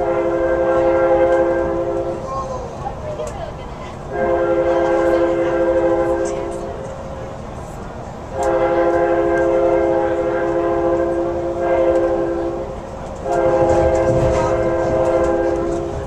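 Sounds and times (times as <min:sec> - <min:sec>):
locomotive horn blasts: 0:00.0 - 0:02.2, 0:04.1 - 0:06.7, 0:08.4 - 0:16.0
low rumble of moving train: 0:00.0 - 0:16.0.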